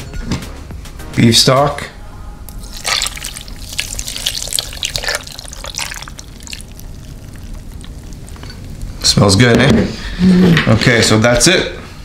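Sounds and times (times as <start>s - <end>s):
broth trickling and splashing: 2.5s - 9.3s.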